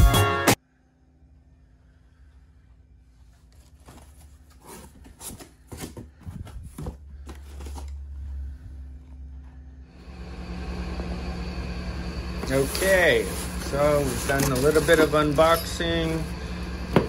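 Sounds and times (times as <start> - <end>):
cardboard box rustling: 3.5 - 7.9
low steady rumble: 6.2 - 17.0.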